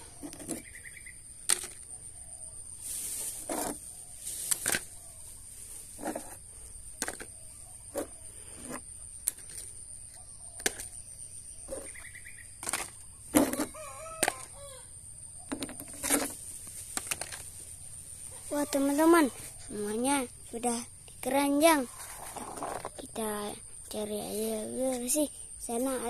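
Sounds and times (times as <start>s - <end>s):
plastic toys knocking on board: 7.0s - 7.3s, 15.5s - 16.4s.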